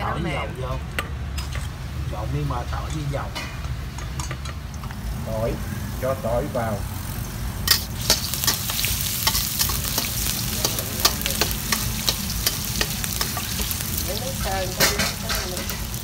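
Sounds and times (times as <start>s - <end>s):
garlic sizzling in hot oil: 3.7s - 16.0s
metal spatula scraping wok: 7.6s - 16.0s.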